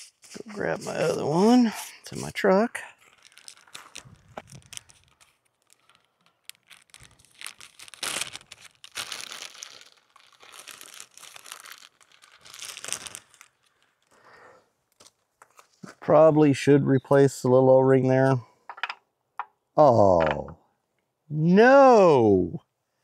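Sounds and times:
plastic bag crinkling: 0.2s - 14.2s.

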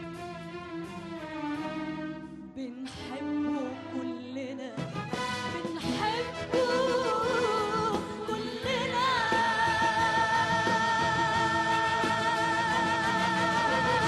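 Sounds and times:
orchestral accompaniment: 0.0s - 8.2s
woman singing opera: 2.6s - 4.8s, 5.6s - 14.0s.

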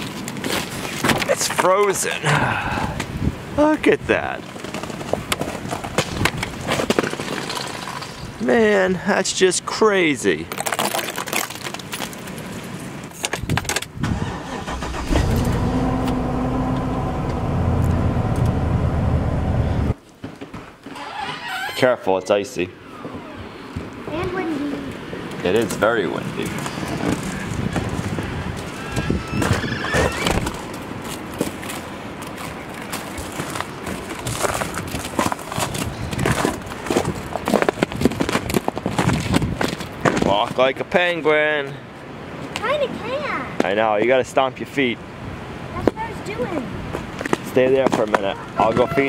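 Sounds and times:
wind buffeting microphone: 2.5s - 4.4s, 13.4s - 20.0s, 26.3s - 40.3s
truck engine cranking and running: 14.0s - 19.9s
footsteps crunching on icy snow: 30.4s - 40.3s.

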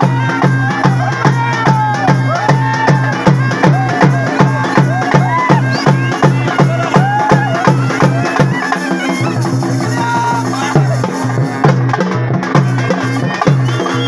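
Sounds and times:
drums beating fast rhythm: 0.0s - 14.0s.

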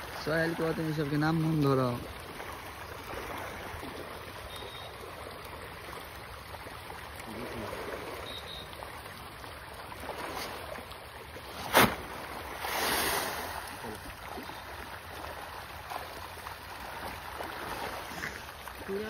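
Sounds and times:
fish churning water: 0.0s - 19.0s
feed splashing onto water: 9.8s - 19.0s
outdoor hiss: 11.6s - 14.0s.

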